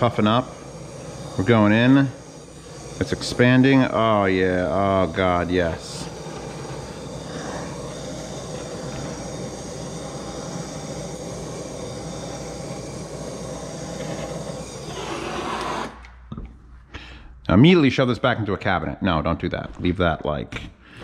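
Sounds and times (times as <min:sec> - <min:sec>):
blowtorch flame hissing: 0:00.0 - 0:16.1.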